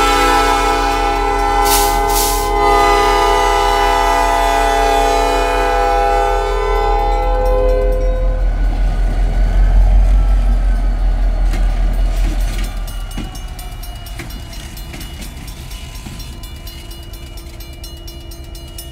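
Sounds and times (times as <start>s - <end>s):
locomotive engine rumble: 0.0s - 18.9s
locomotive horn chord: 0.0s - 18.9s
wheels clicking over rail joints: 6.8s - 18.9s.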